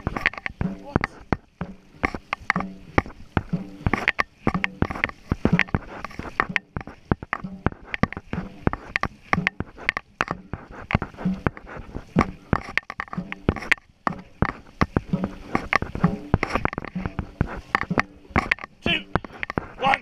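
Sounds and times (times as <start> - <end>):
paddles knocking: 0.0 - 20.0
paddles splashing through water: 0.0 - 20.0.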